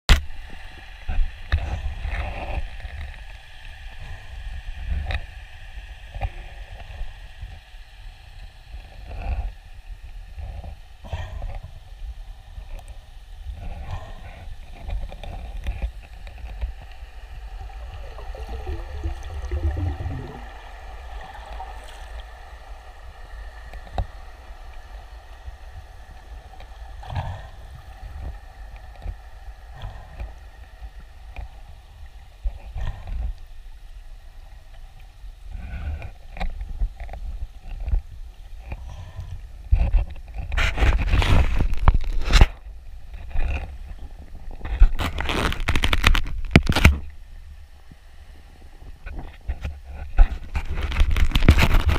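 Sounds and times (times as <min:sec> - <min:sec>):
faint steady hum: 0:00.1 - 0:40.6, 0:41.5 - 0:51.9
low underwater rumble: 0:13.4 - 0:33.6.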